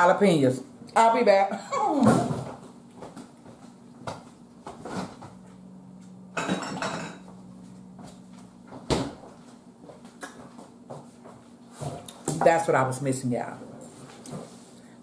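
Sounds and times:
dishes and containers clinking: 6.4 - 7.3.

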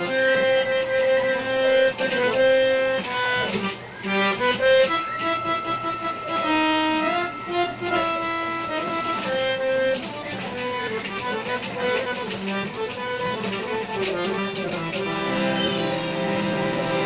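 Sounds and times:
harmonium melody: 0.0 - 17.0.

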